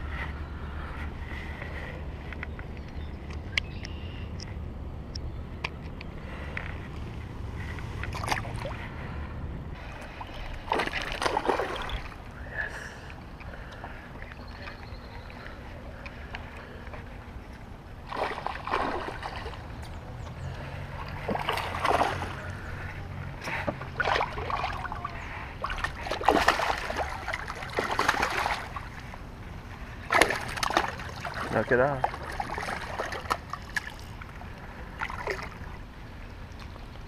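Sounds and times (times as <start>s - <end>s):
fish thrashing and splashing: 7.6s - 8.8s, 10.0s - 12.3s, 18.0s - 29.4s, 30.0s - 35.8s.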